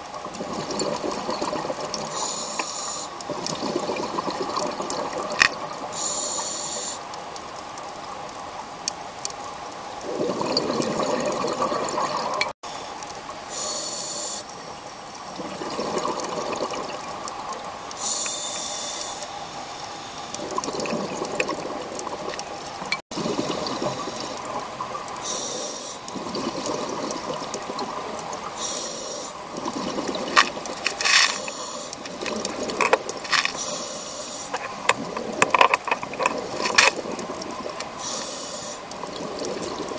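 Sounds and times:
bubbling exhalations: 0:00.2 - 0:02.2, 0:03.2 - 0:05.7, 0:10.0 - 0:12.5, 0:15.3 - 0:17.1, 0:20.3 - 0:22.5, 0:23.1 - 0:25.4, 0:26.1 - 0:28.8, 0:29.4 - 0:33.9, 0:34.5 - 0:39.9
hissing regulator inhalations: 0:02.1 - 0:03.2, 0:05.9 - 0:07.1, 0:13.5 - 0:14.6, 0:17.9 - 0:20.5, 0:25.2 - 0:26.1, 0:28.6 - 0:29.5, 0:30.4 - 0:32.3, 0:33.2 - 0:34.7, 0:37.9 - 0:39.0
scattered clicks: 0:30.3 - 0:33.6, 0:34.5 - 0:37.9.

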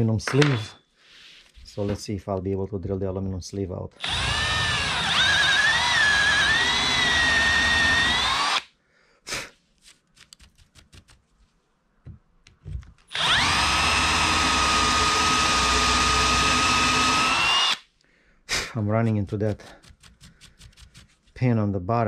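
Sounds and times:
power drill running: 0:00.2 - 0:00.8, 0:04.0 - 0:08.7, 0:13.1 - 0:17.8.

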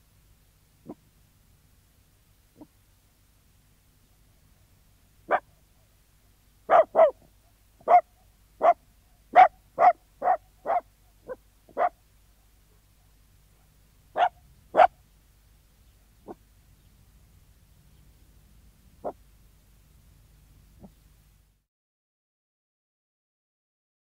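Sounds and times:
dog barking: 0:05.3 - 0:05.5, 0:06.7 - 0:07.2, 0:07.8 - 0:12.0, 0:13.6 - 0:15.0, 0:19.0 - 0:19.2.

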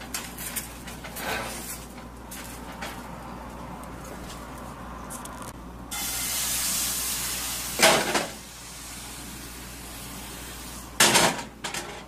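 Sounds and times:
batter sizzling in a skillet: 0:05.9 - 0:10.9.

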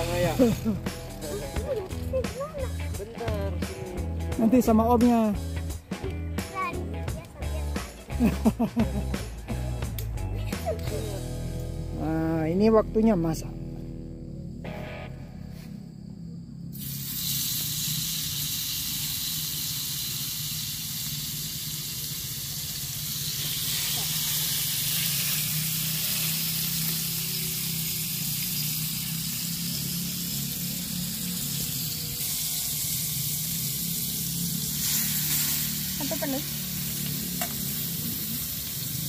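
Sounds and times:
food sizzling in a pan: 0:16.8 - 0:39.0.

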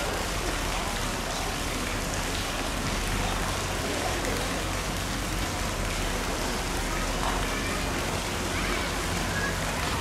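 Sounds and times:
running water hiss: 0:00.0 - 0:10.0.

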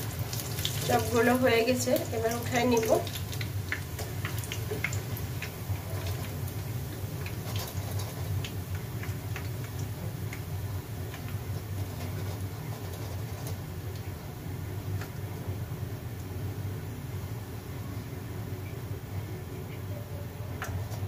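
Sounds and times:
oil dripping into pan: 0:00.0 - 0:01.2, 0:01.9 - 0:14.2
frying oil crackling and popping: 0:00.0 - 0:16.7, 0:20.5 - 0:21.0
steady low hum: 0:00.0 - 0:21.0.

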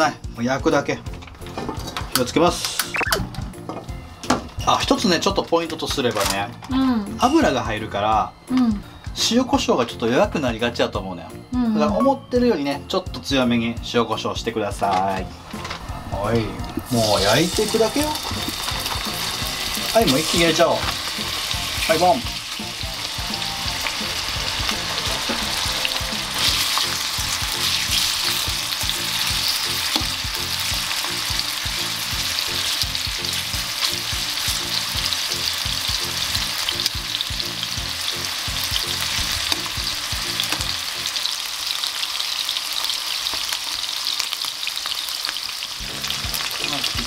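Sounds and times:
chicken sizzling in oil: 0:15.1 - 0:47.0.

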